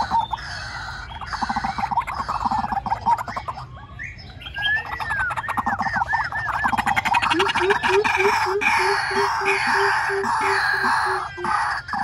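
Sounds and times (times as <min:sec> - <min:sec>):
harsh rasping bird chorus: 0:00.0 - 0:12.0
bird arching notes: 0:04.5 - 0:12.0.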